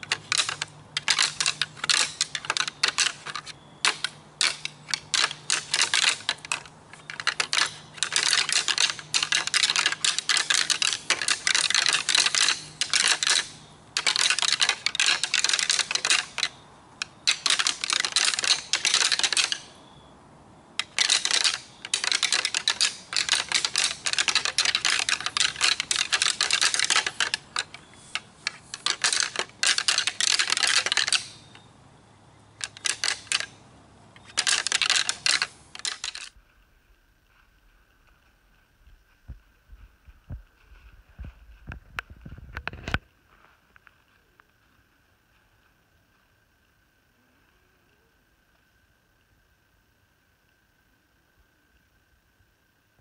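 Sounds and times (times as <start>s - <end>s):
rattling antlers clicking: 0.0s - 19.8s, 20.8s - 31.7s, 32.6s - 36.4s.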